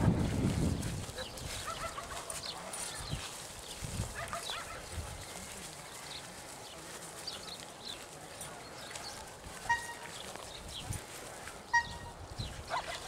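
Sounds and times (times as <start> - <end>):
dogs vocalising: 12.7 - 13.0.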